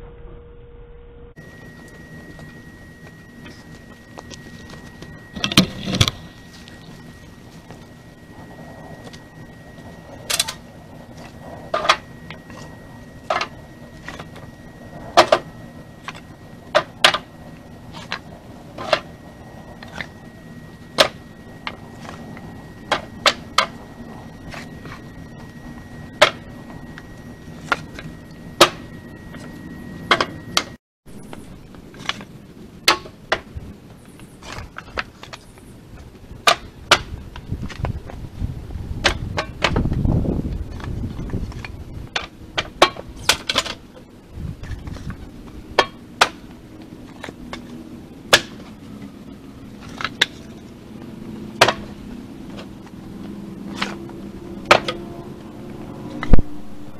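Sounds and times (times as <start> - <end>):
wood offcuts clacking into cargo bed: 51.6 - 51.8.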